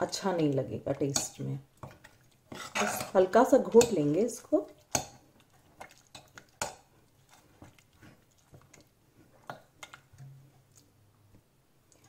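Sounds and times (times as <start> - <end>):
metal ladle scraping metal pot: 2.5 - 4.0.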